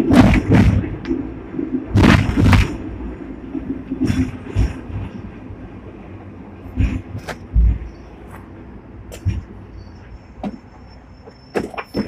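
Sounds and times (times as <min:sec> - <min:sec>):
tram clunks and rattles: 0:00.0 - 0:12.0
tram running gear rumble: 0:00.0 - 0:12.0.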